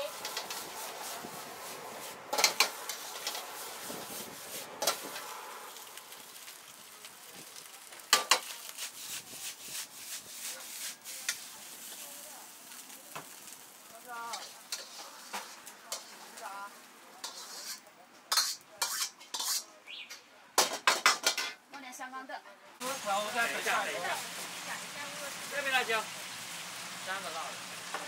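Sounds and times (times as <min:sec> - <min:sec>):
ladle scraping a wok: 0:00.0 - 0:06.5, 0:08.0 - 0:13.5, 0:14.2 - 0:19.8
rice sizzling in a wok: 0:00.0 - 0:19.7, 0:20.6 - 0:21.6, 0:22.8 - 0:28.0
ladle clanging on wok: 0:02.3 - 0:03.4, 0:17.2 - 0:19.6.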